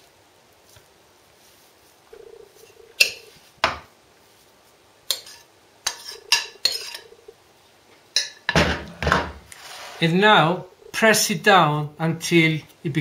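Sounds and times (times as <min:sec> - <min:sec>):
metal spoon scraping ceramic bowl: 0:05.1 - 0:07.1.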